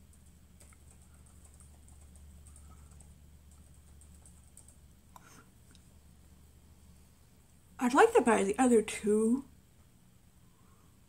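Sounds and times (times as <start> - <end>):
steady low hum: 0.0 - 11.0
faint light ticks: 4.6 - 5.9.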